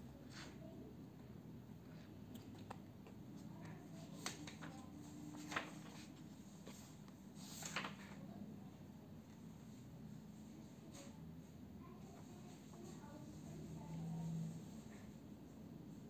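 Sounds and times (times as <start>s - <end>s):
faint room hum: 0.0s - 16.0s
book pages rustling: 2.3s - 8.2s.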